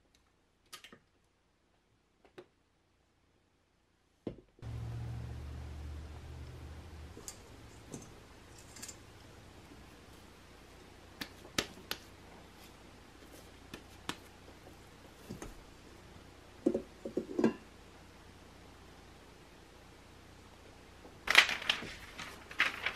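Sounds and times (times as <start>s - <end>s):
hands patting bread dough: 11.1s - 15.6s.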